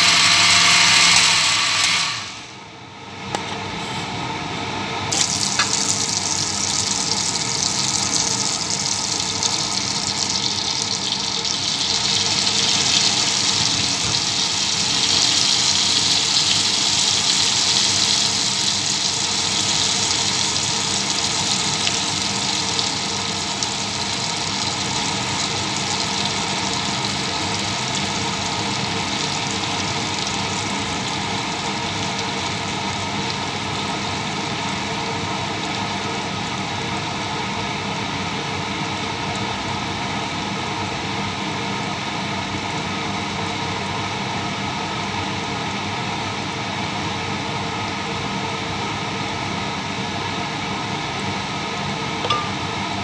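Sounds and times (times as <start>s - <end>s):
mechanical hum and hiss: 0.0s - 53.0s
held tones: 52.2s - 52.8s.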